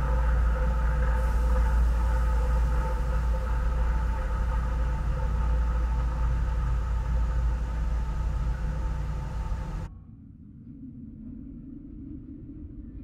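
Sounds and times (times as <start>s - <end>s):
faint steady tones: 0.0s - 9.9s
low machinery hum: 0.0s - 12.9s.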